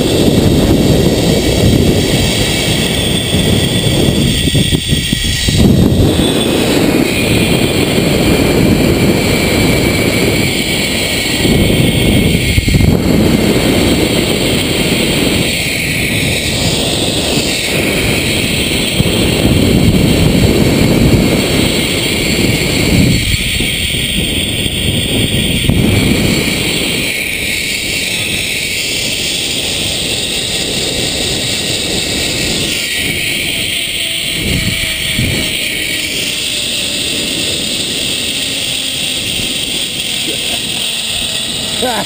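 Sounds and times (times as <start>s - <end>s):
pulleys whirring on cable: 0.0s - 42.0s
wind rushing over microphone: 0.0s - 42.0s.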